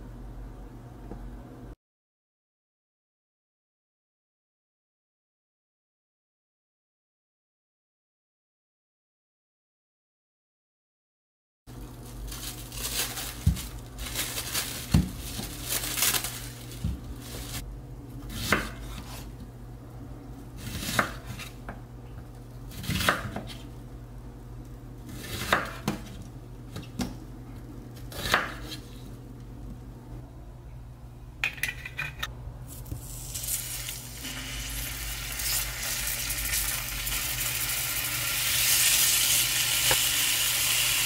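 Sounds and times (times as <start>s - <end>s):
knife cutting onion on board: 18.2s - 19.3s, 20.6s - 21.5s, 22.7s - 23.6s, 25.1s - 27.1s, 28.0s - 28.8s
spoon scraping and knocking: 31.5s - 32.3s.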